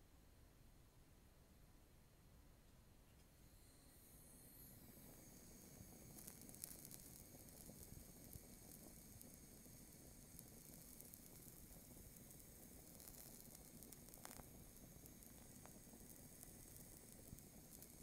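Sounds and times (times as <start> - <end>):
gas torch hissing: 3.4 - 18.0
burning plastic crackling and popping: 4.8 - 18.0.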